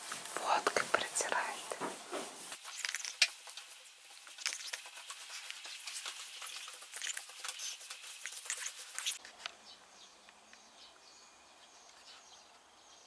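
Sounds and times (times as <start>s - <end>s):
cloth rustling on plastic tablecloth: 1.6s - 9.4s.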